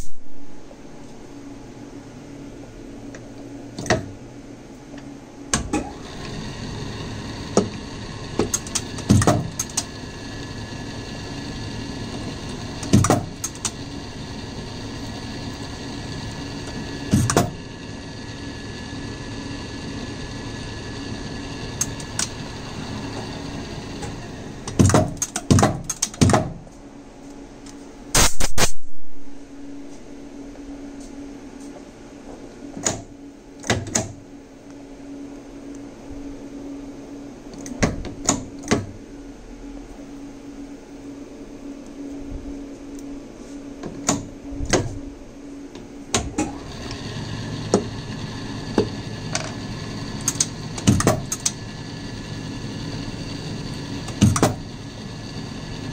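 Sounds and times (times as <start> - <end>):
lathe motor humming: 5.8 - 24.8, 46.4 - 55.9.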